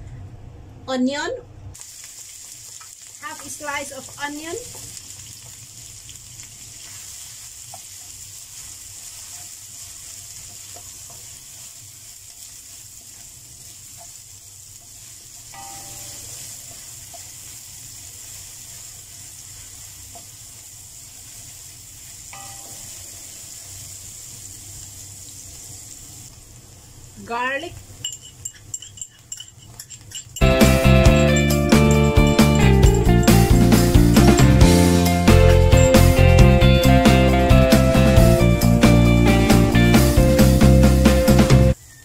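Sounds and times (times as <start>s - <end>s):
onion sizzling in hot oil: 1.8s - 28.8s, 29.6s - 42.0s
wooden spatula stirring in wok: 2.0s - 22.4s.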